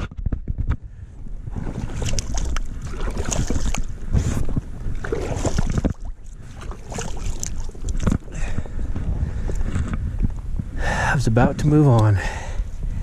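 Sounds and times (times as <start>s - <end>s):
wind rumble on microphone: 0.0s - 13.0s
hands splashing in water: 1.7s - 3.9s.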